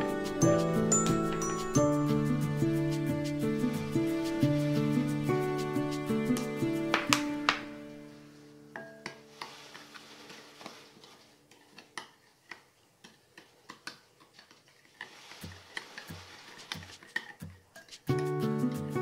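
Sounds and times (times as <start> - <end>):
background music: 0.0 - 10.8, 16.7 - 19.0.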